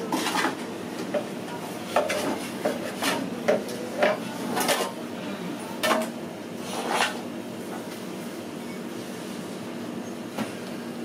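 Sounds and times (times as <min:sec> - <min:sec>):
metal baking trays clanking: 0:01.9 - 0:05.0.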